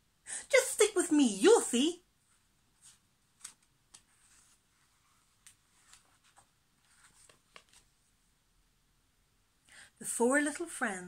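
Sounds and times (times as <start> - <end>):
paper rustling as page turns: 2.8 - 8.0.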